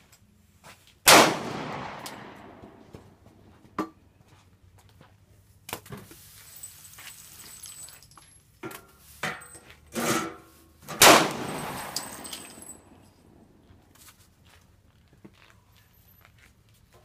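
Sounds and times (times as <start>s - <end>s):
pistol shot: 1.1s - 2.8s, 11.0s - 12.2s.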